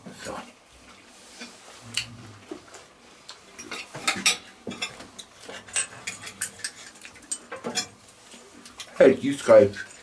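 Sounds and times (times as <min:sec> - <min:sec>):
cutlery and tableware clinking: 0:03.6 - 0:10.0.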